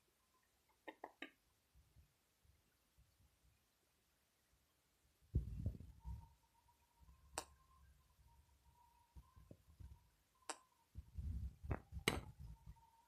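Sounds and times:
faint steady high tone: 5.2s - 13.0s.

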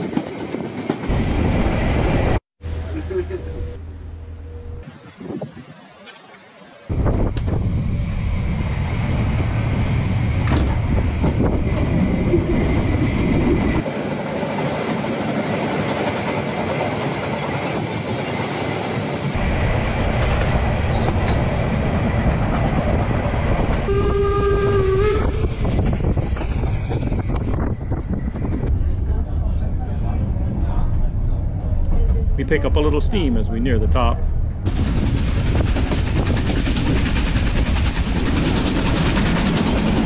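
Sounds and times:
steam train running: 0.0s - 3.7s, 6.9s - 30.8s, 32.0s - 40.0s
steam locomotive whistle: 23.8s - 25.4s.

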